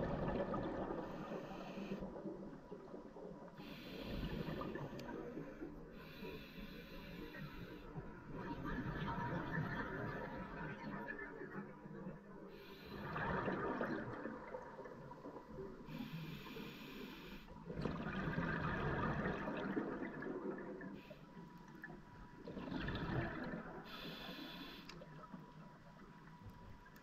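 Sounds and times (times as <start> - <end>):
regulator inhalation hiss: 6.0 - 7.8, 23.9 - 24.9
exhaust bubbles rushing: 17.8 - 20.8.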